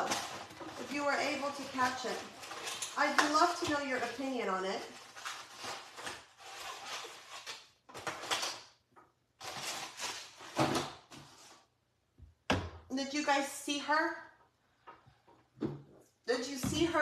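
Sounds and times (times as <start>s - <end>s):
kitchen rustling and knocking: 0.0s - 4.6s, 9.5s - 11.4s, 12.2s - 12.9s, 14.8s - 16.0s, 16.6s - 17.0s.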